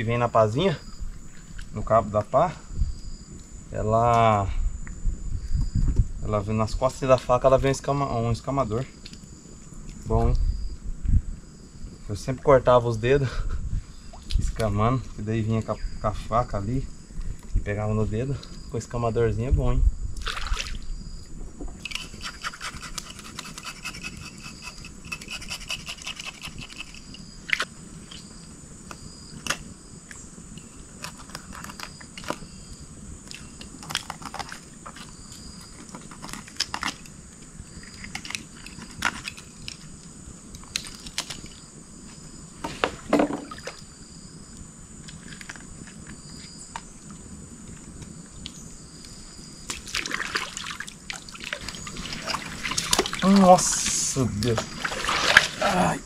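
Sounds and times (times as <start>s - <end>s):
knife scraping fish scales: 21.8s - 27.2s.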